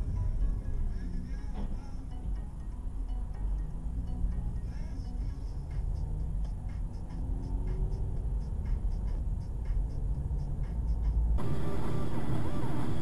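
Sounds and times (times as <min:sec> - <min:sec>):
low road rumble: 0:00.0 - 0:13.0
car engine accelerating: 0:05.6 - 0:13.0.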